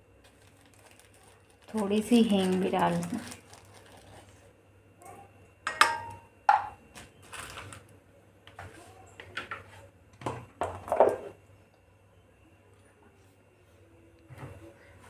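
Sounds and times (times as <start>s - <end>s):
kitchen utensils clicking and knocking: 5.7s - 6.7s.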